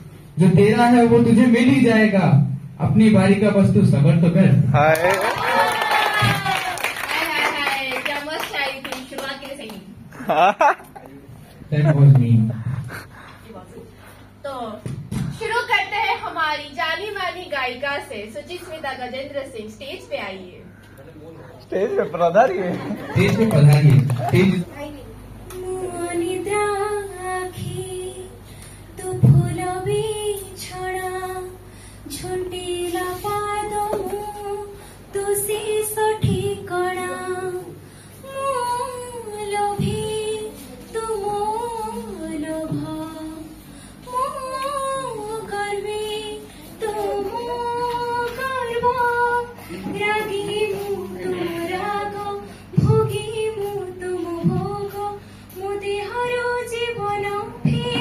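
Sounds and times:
woman singing into microphone: 25.5 - 58.0.

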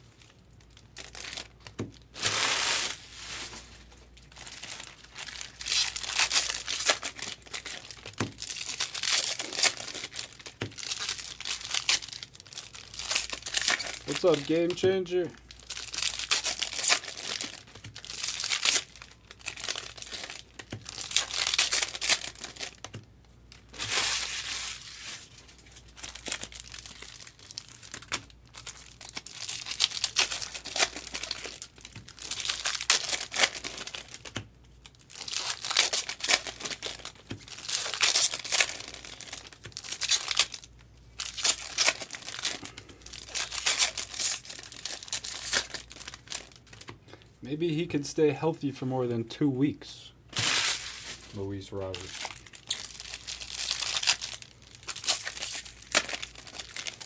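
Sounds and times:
foil wrappers tearing and crinkling: 0.1 - 47.0, 50.3 - 57.0.

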